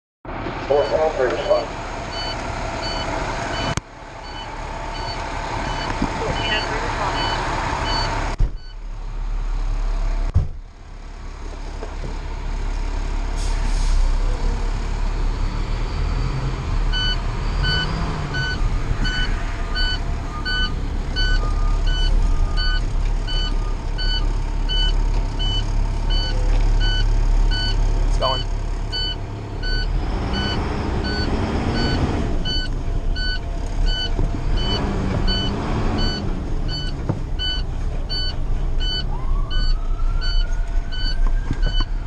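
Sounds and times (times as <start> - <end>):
diesel engine low rumble: 0.3 - 42.0
electronic warning beeper: 0.8 - 8.7, 16.2 - 41.9
heavy door slams: 10.3 - 10.6.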